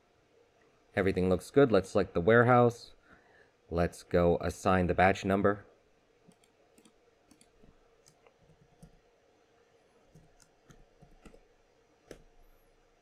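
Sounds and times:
faint room hum: 0:00.0 - 0:13.0
mouse clicks: 0:06.3 - 0:09.0, 0:10.1 - 0:11.5, 0:12.1 - 0:12.4
keyboard keystrokes: 0:10.1 - 0:11.4.

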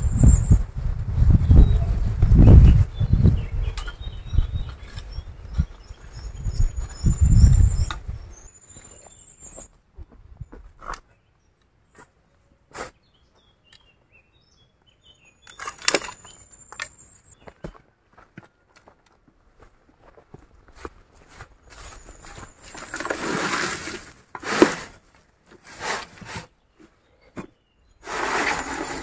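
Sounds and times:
birds chirping: 0:01.4 - 0:09.8, 0:10.4 - 0:18.7
shovel digging soil: 0:22.3 - 0:26.5, 0:28.0 - 0:29.0.

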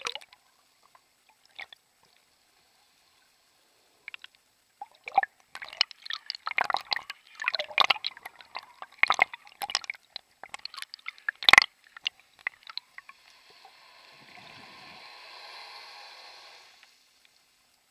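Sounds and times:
steady underwater hiss: 0:00.0 - 0:17.9
sea water splashing and gurgling: 0:03.6 - 0:17.2.

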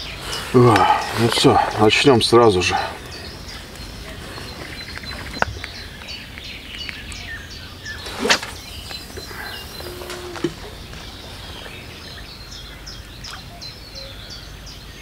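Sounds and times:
birds chirping and trilling: 0:00.0 - 0:15.0
outdoor hush: 0:00.0 - 0:15.0
loud swish: 0:08.0 - 0:08.6.

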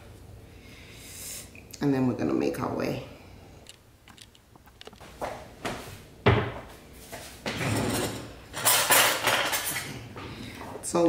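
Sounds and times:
knock on counter: 0:06.3 - 0:06.6.

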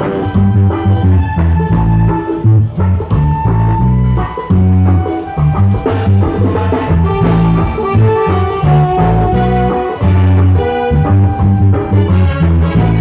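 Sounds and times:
deep bass line: 0:00.0 - 0:13.0
drums and congas: 0:00.0 - 0:13.0
reggae band playing: 0:00.0 - 0:13.0
saxophones and trumpets: 0:00.0 - 0:13.0.

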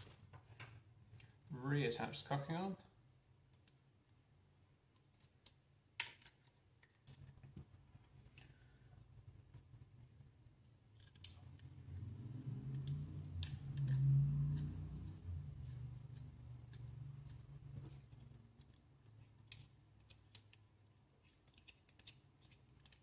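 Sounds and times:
small metal parts clicking: 0:10.9 - 0:11.7, 0:12.7 - 0:16.2, 0:16.8 - 0:20.6, 0:21.2 - 0:23.0.

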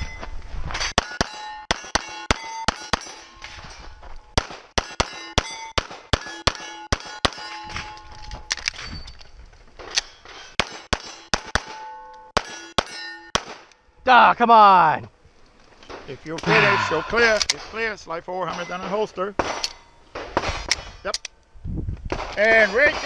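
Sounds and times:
steel target plate ringing: 0:00.0 - 0:09.1, 0:10.2 - 0:13.9
rapid pistol shots: 0:04.4 - 0:07.5, 0:10.6 - 0:11.8, 0:12.4 - 0:13.7.

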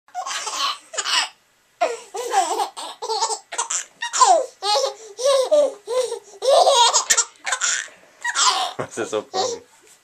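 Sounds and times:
baby giggling: 0:00.2 - 0:09.6.

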